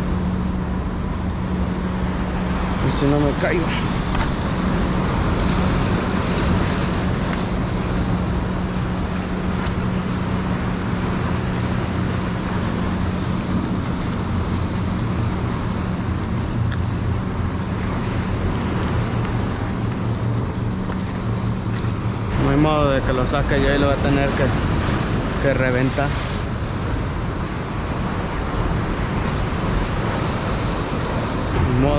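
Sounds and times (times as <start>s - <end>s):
motorboat engine drone: 0.0s - 31.9s
surf breaking over rocks: 20.7s - 31.9s.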